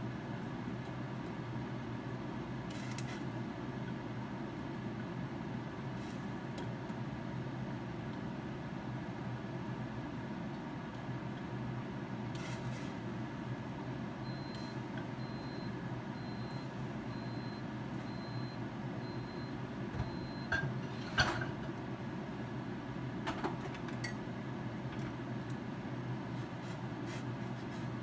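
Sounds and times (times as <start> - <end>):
low appliance hum: 0.0 - 28.0
kitchen appliance beeping: 14.2 - 21.3.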